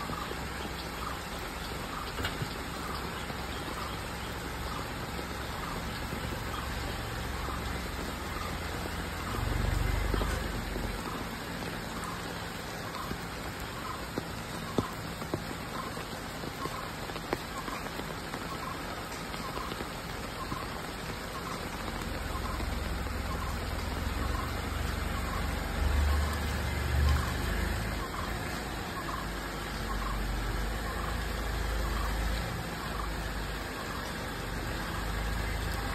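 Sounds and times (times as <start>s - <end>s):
car engine and tyre rumble: 0.0s - 35.9s
rain pattering and dripping: 0.0s - 35.9s.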